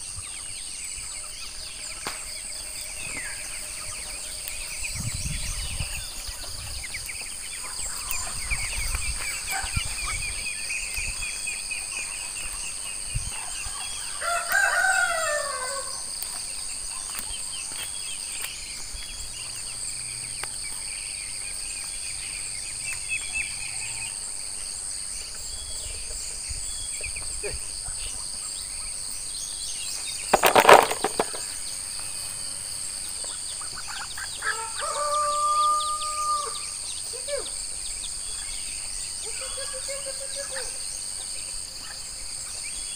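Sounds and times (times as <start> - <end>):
high insect drone: 0.0 - 42.9.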